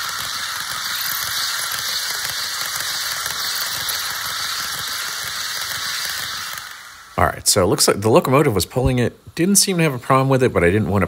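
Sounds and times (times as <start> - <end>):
model train wheels on rails: 0.0 - 7.2.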